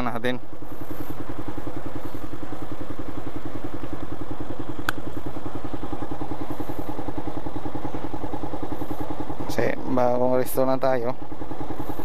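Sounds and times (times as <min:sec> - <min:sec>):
scooter engine idling: 0:00.0 - 0:12.0
sharp click: 0:04.8 - 0:05.1.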